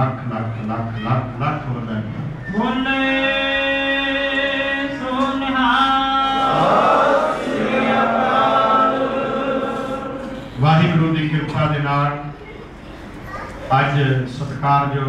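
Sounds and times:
blur of many voices: 0.0 - 15.0
congregation chanting: 2.6 - 11.2.

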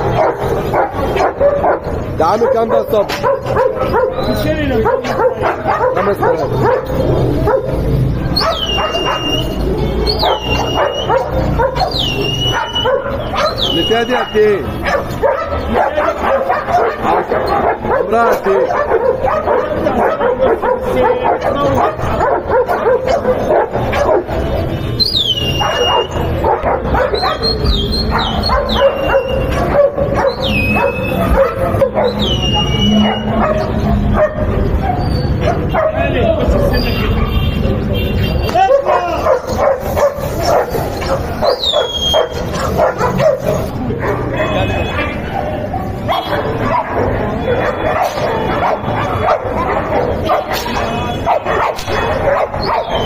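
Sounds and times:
dog whining: 0.1 - 15.6, 25.0 - 35.9, 38.7 - 44.2, 45.3 - 53.0.

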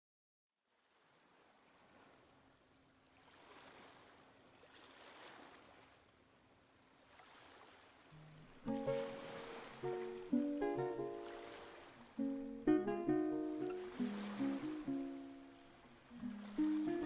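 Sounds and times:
lo-fi guitar music: 8.2 - 17.0.

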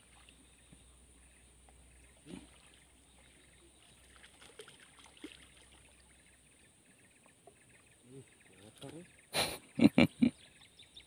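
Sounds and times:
water sloshing from wading: 1.6 - 9.2.

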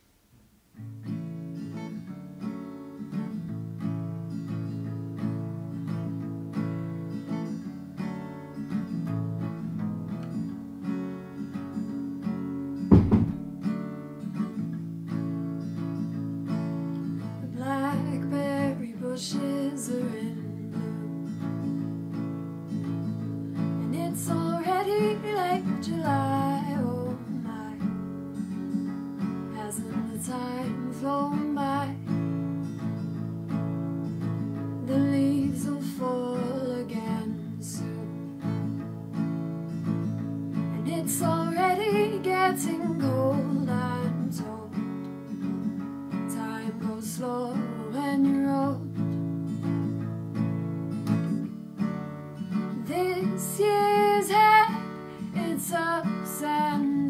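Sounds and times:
acoustic guitar strumming: 0.7 - 57.0
sharp thump: 12.9 - 13.6
woman singing: 17.3 - 21.3, 23.8 - 28.0, 29.5 - 32.2, 34.8 - 38.8, 40.7 - 44.8, 46.1 - 49.0, 52.7 - 57.0.

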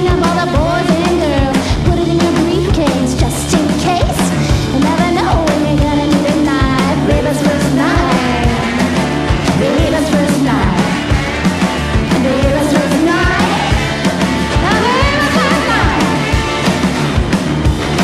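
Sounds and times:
woman singing lead vocal: 0.0 - 11.0, 12.1 - 13.9, 14.5 - 16.2
drums driving beat: 0.0 - 18.0
electric guitar: 0.0 - 18.0.

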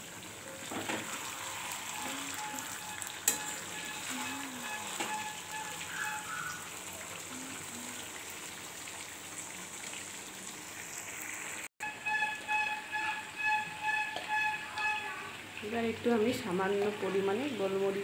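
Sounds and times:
food sizzling in oil: 0.0 - 18.0
metal spatula stirring: 1.0 - 6.4.

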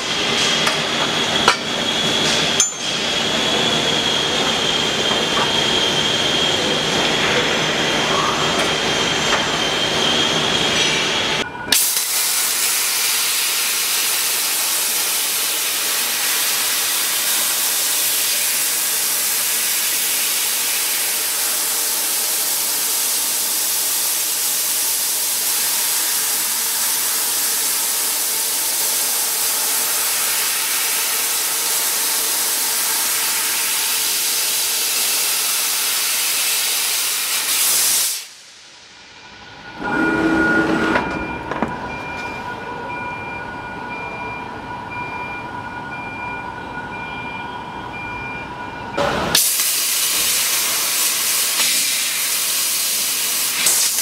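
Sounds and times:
laser cutter hissing: 0.1 - 38.4, 49.3 - 54.0
steady humming tones: 38.5 - 49.2.

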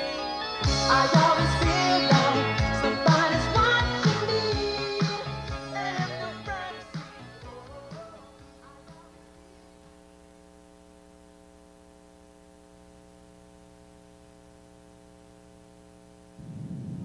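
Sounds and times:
faint electrical mains hum: 7.4 - 17.0.

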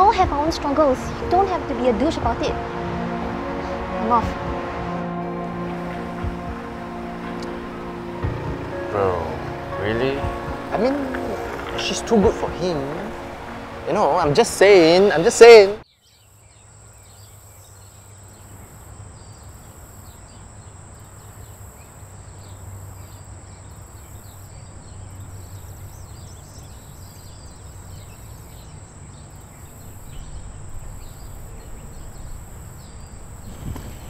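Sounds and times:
low hum: 0.0 - 15.8.

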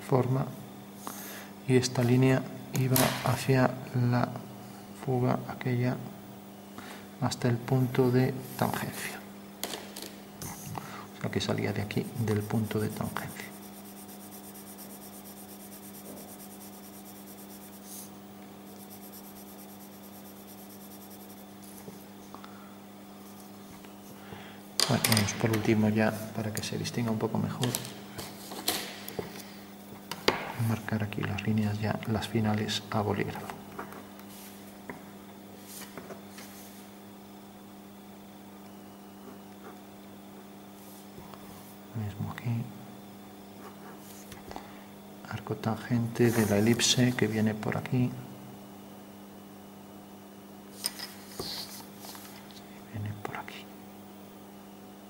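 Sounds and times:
steady hum: 0.0 - 55.0
pencil scratching on paper: 11.9 - 18.1, 18.7 - 22.0.

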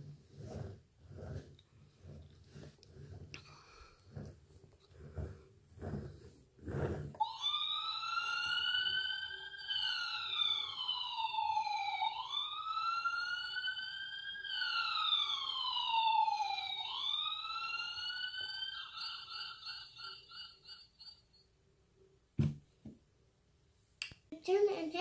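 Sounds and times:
toy electronic siren wailing: 7.2 - 21.3.

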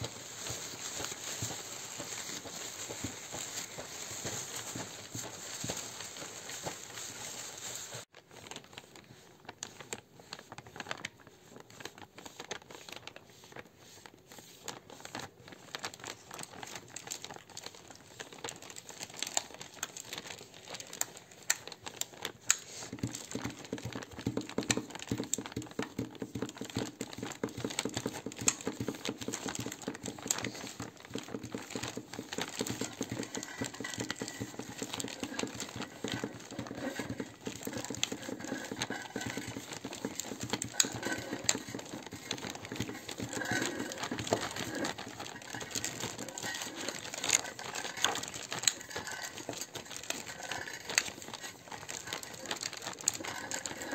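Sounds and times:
low rapid rustling: 0.0 - 8.0, 23.0 - 53.9
material crinkling and crackling: 0.0 - 53.9.

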